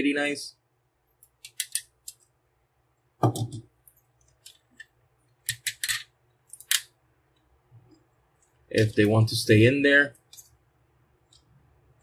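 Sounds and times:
plastic toy parts clicking: 0:01.3 - 0:02.2, 0:04.4 - 0:06.9.

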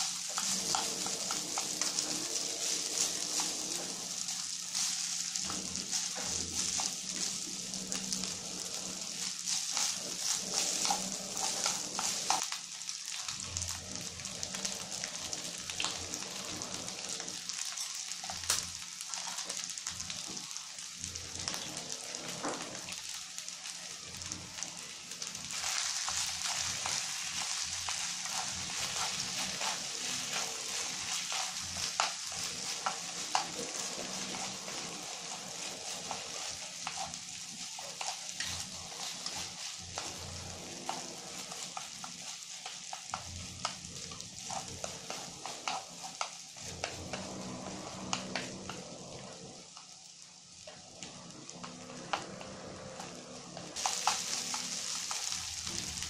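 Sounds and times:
chopsticks scraping a pan: 0:00.0 - 0:12.6, 0:25.4 - 0:48.8
rice sizzling in a pan: 0:00.0 - 0:56.0.

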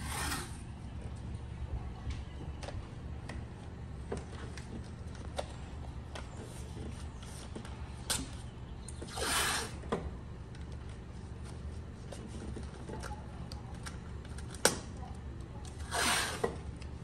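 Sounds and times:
tape ripping off roll: 0:09.0 - 0:09.8, 0:15.8 - 0:16.6.

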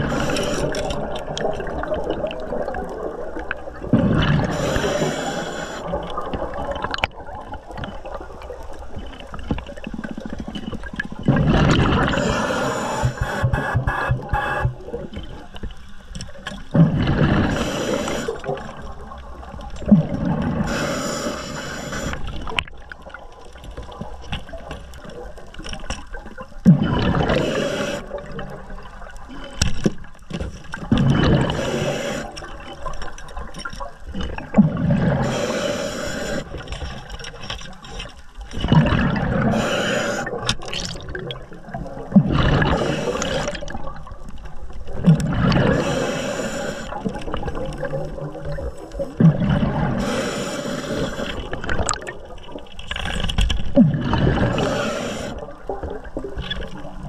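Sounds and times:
bubbles: 0:00.0 - 0:21.2, 0:22.0 - 0:57.0
underwater rushing gurgling water: 0:00.0 - 0:57.0.

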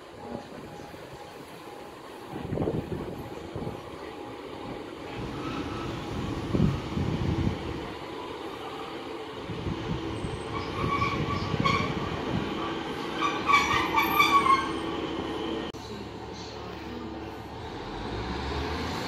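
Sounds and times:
train rolling slowly: 0:00.0 - 0:19.0
brakes squealing: 0:05.1 - 0:15.7.

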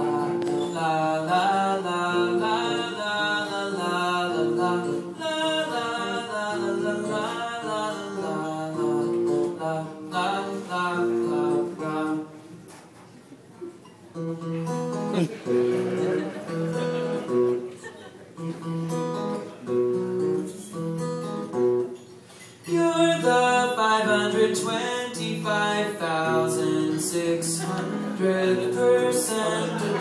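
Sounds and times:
man singing: 0:00.0 - 0:12.4, 0:22.6 - 0:30.0
plucked acoustic guitar: 0:00.0 - 0:12.8, 0:13.8 - 0:30.0.

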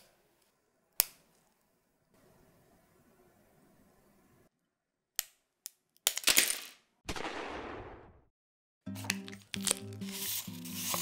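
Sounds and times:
background music: 0:08.8 - 0:11.0.

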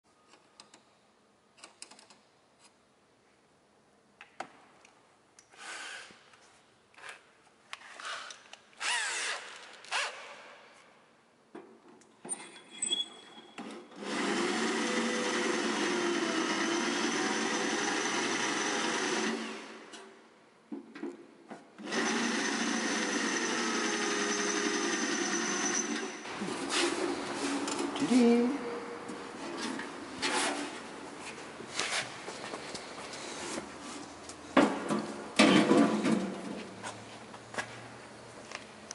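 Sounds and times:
electric drill on metal: 0:14.0 - 0:19.9, 0:21.8 - 0:26.2.

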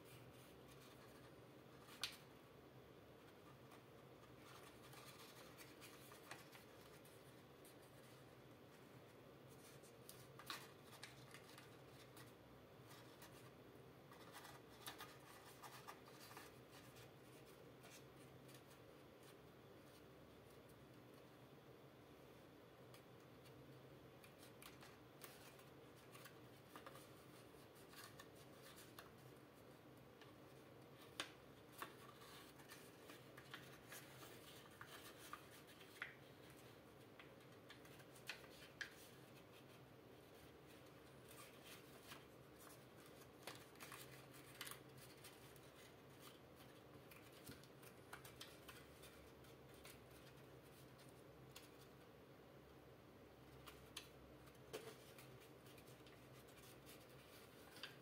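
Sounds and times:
faint steady hum: 0:00.0 - 0:58.0
paper rustling and crinkling: 0:03.2 - 0:08.9, 0:09.5 - 0:20.1, 0:24.2 - 0:29.4, 0:30.2 - 0:52.0, 0:53.5 - 0:58.0
paper crackles: 0:09.5 - 0:13.5, 0:24.2 - 0:29.4, 0:30.2 - 0:51.9, 0:53.5 - 0:58.0.

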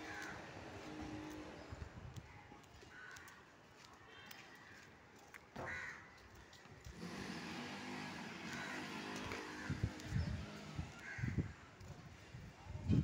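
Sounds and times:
crows cawing: 0:00.0 - 0:00.6, 0:02.9 - 0:03.4, 0:05.6 - 0:06.2, 0:08.4 - 0:10.1, 0:10.9 - 0:11.6.

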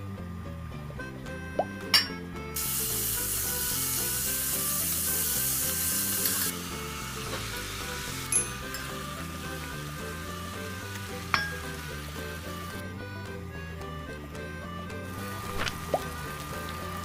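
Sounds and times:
soft background music: 0:00.0 - 0:17.0
meat sizzling in a pot: 0:02.6 - 0:12.9, 0:15.1 - 0:17.0.

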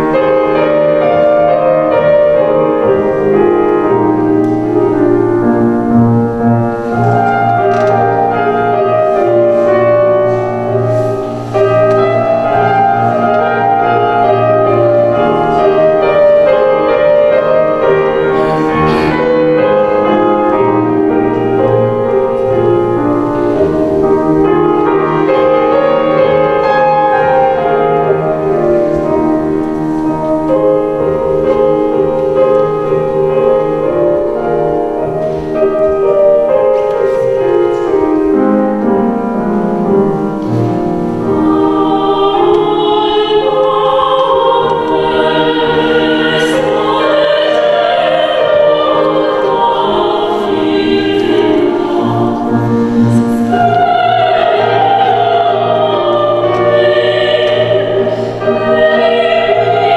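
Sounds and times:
piano: 0:00.0 - 0:59.9
operatic singing: 0:40.7 - 0:59.9.

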